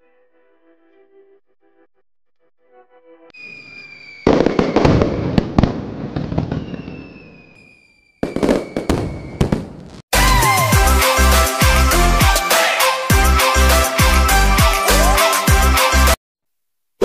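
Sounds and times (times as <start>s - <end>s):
firework whistle: 3.3s - 10.8s
firework bursts with crackling: 3.4s - 10.0s
electronic music: 10.2s - 16.2s.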